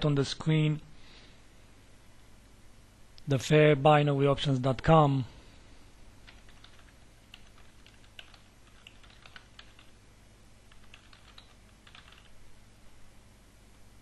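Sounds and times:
typing on a keyboard: 6.2s - 10.0s, 10.7s - 12.3s.

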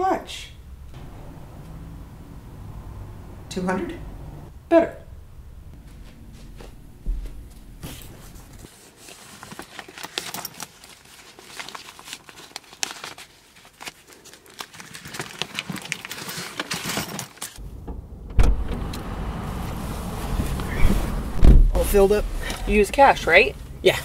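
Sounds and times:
low rumble: 0.4s - 8.7s, 17.6s - 22.7s
sharp thump: 0.9s - 3.5s, 17.8s - 18.9s, 21.0s - 21.8s
crinkling handling noise: 5.8s - 17.6s.

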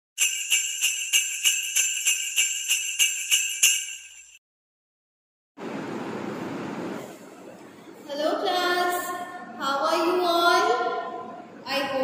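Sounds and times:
jingle bells shaken: 0.2s - 4.4s.

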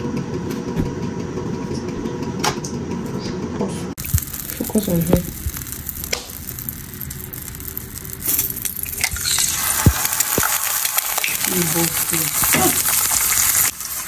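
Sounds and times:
oil sizzling: 4.0s - 14.0s.

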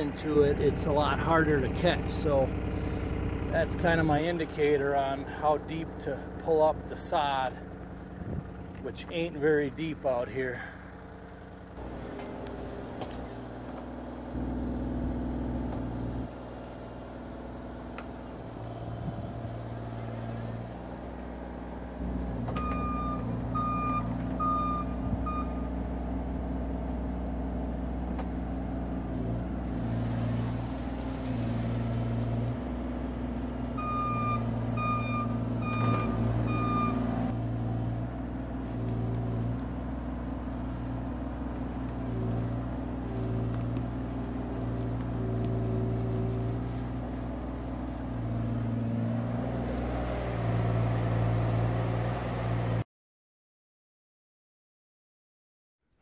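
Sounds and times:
excavator diesel engine under load: 0.0s - 52.8s
excavator digging and scraping clay: 11.8s - 14.2s, 28.5s - 32.8s, 35.4s - 52.8s
reversing alarm beeps: 22.6s - 25.7s, 33.8s - 37.1s.

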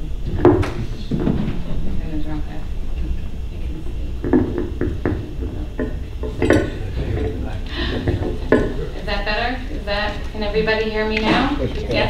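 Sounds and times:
low room hum: 0.0s - 12.0s
light knocks and clinks: 5.8s - 7.3s.

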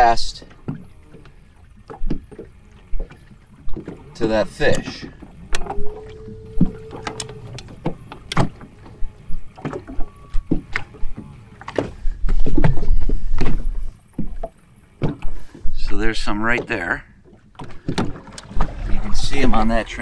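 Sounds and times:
small waves slapping boat hull: 0.0s - 20.0s
held tone: 5.6s - 8.3s, 9.9s - 10.5s.

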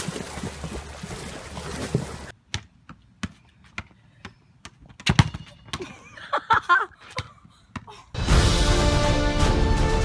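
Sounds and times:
icy water and slush splashing: 0.0s - 2.3s
basketball hitting asphalt and wall: 2.3s - 8.0s.

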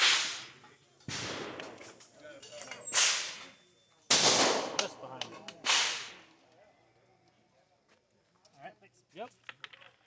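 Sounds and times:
loud gunshots: 0.0s - 1.8s, 3.0s - 3.4s, 4.1s - 5.0s, 5.6s - 6.2s.

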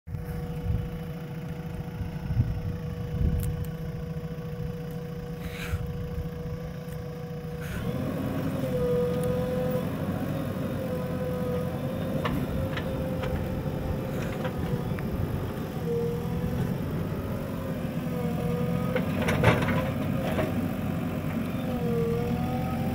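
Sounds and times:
steady humming tone: 0.1s - 7.8s
diesel engine running: 0.1s - 22.9s.

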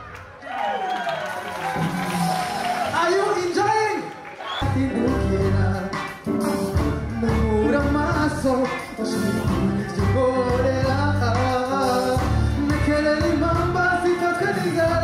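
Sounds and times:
man singing into a microphone: 4.6s - 15.0s.

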